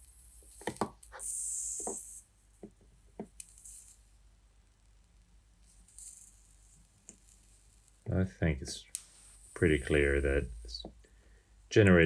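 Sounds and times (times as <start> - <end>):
solder flux sizzling: 0.0 - 12.0.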